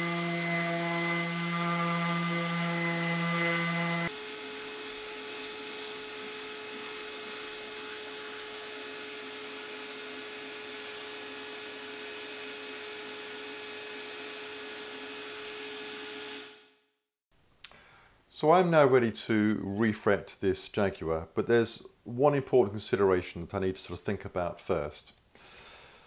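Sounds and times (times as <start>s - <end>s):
dust extraction vacuum hissing: 0.0s - 16.3s.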